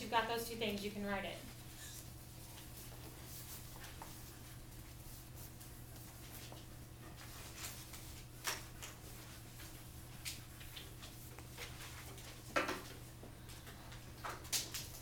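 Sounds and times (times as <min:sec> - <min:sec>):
low room hum: 0:00.0 - 0:15.0
small knocks and rustles: 0:05.5 - 0:15.0.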